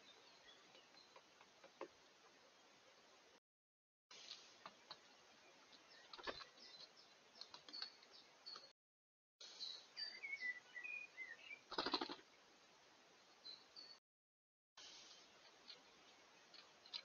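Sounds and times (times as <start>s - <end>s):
birdsong chirps: 0.0s - 3.4s, 4.1s - 8.8s, 9.4s - 14.0s, 14.8s - 17.0s
wings fluttering: 11.7s - 12.3s.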